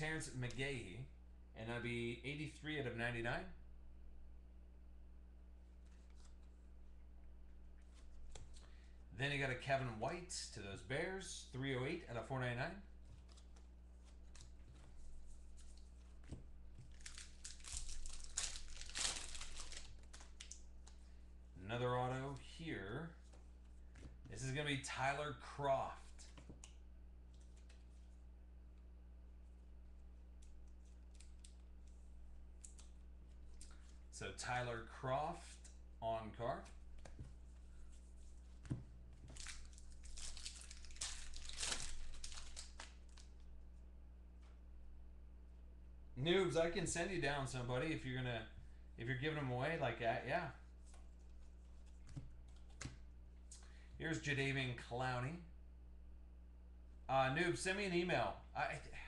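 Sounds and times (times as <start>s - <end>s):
low electrical hum: 0.0s - 59.0s
foil pack crinkling: 16.7s - 21.0s, 39.2s - 43.4s.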